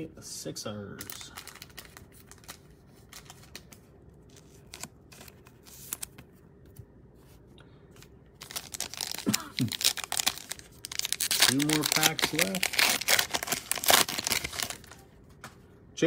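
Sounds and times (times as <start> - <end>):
foil card pack ripping open: 8.4 - 15.0.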